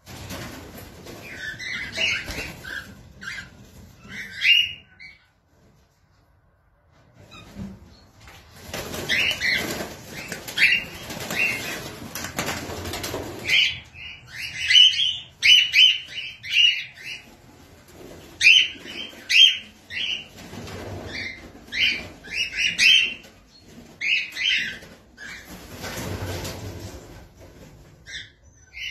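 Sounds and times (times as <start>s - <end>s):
wings flapping: 0.0s - 4.4s, 7.6s - 14.6s, 17.0s - 28.2s
cockatiels chirping: 1.2s - 5.3s, 8.9s - 11.9s, 13.4s - 17.4s, 18.3s - 25.5s, 28.0s - 28.9s.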